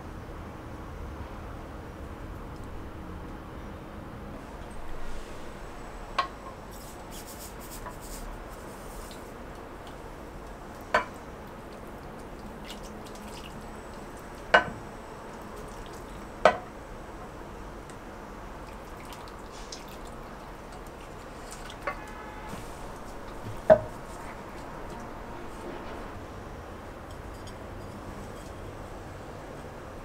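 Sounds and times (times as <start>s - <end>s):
liquid trickling and splashing: 9.0s - 14.5s, 15.2s - 16.3s, 18.6s - 25.0s.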